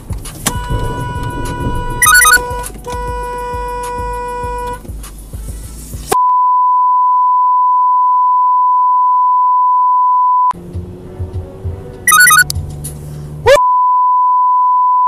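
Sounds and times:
low thumps: 0.0 - 5.8
car interior noise: 0.0 - 6.2, 10.5 - 13.6
steady bleep tone: 0.5 - 2.7, 12.1 - 12.5.

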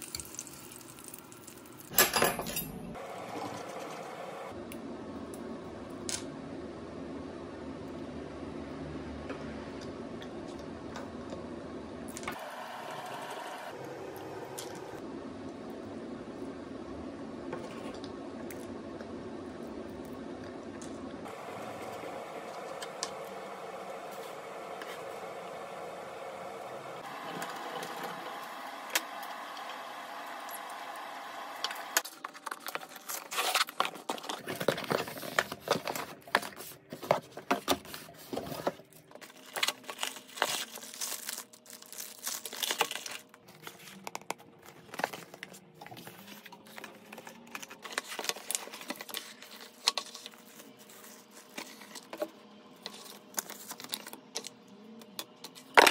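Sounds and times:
plastic wrapping crinkling: 32.0 - 37.0, 37.9 - 52.1.

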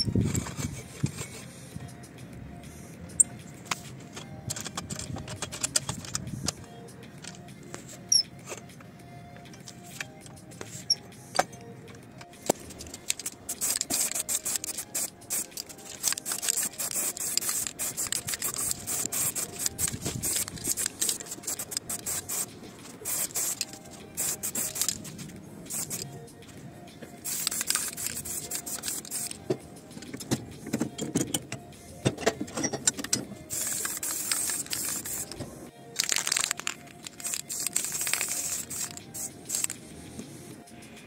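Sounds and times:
spray-paint can hissing: 13.0 - 25.1, 25.7 - 26.1, 27.2 - 29.4, 33.5 - 35.4, 36.0 - 39.8.

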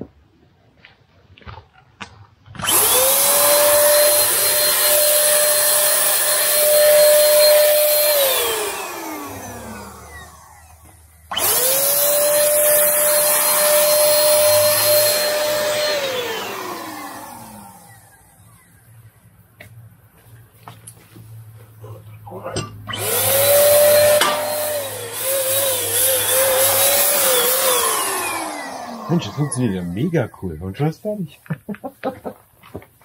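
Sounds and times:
electric spray gun motor whining: 2.6 - 19.0, 22.9 - 30.1.

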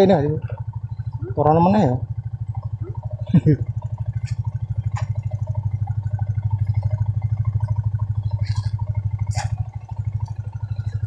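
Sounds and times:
small motorcycle engine putter: 3.8 - 5.4, 6.4 - 11.0.

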